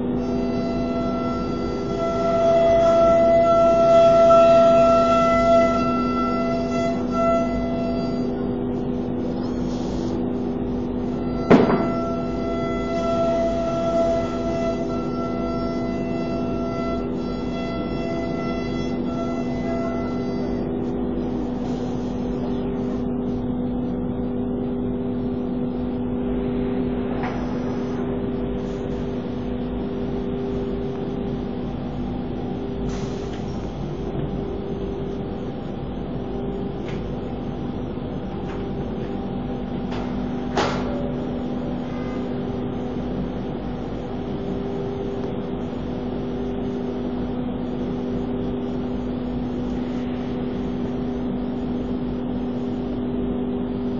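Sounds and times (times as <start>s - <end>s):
wood router machine drone: 0.0s - 23.6s.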